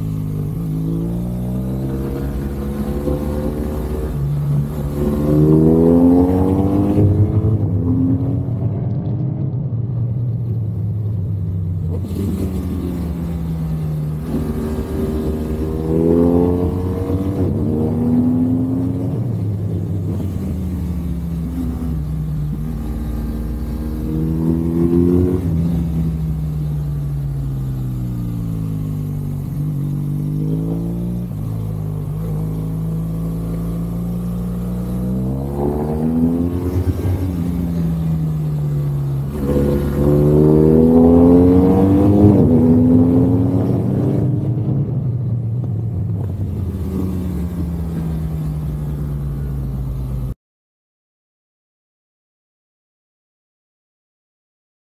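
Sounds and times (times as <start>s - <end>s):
motorcycle engine revving: 0.0s - 8.8s, 11.6s - 50.4s.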